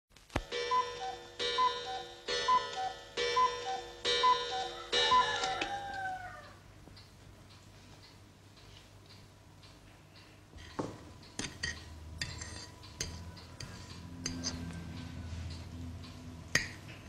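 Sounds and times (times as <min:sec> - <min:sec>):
clock chime striking: 0:00.4 - 0:05.9.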